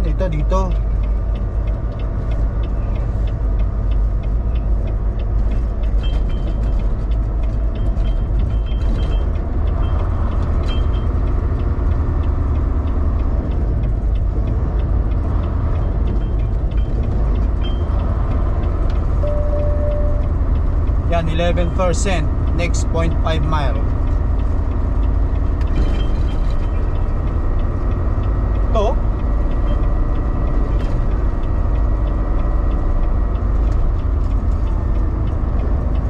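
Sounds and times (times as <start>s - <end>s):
truck engine and road rumble: 0.0s - 36.0s
short beep: 19.2s - 20.4s.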